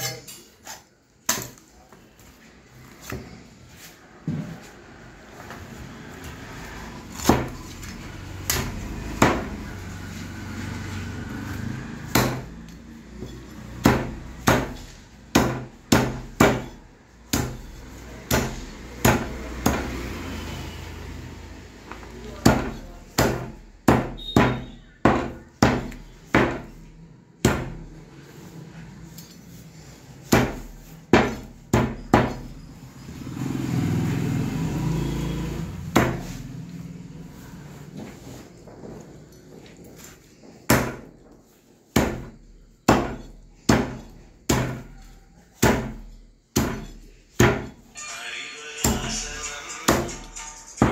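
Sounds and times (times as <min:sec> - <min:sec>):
cleaver chopping on wooden block: 0:07.2 - 0:07.8, 0:08.5 - 0:09.6, 0:12.1 - 0:12.7, 0:13.5 - 0:20.0, 0:22.4 - 0:26.8, 0:27.4 - 0:27.8, 0:30.3 - 0:32.5, 0:35.9 - 0:36.4, 0:40.7 - 0:41.1, 0:41.9 - 0:47.8.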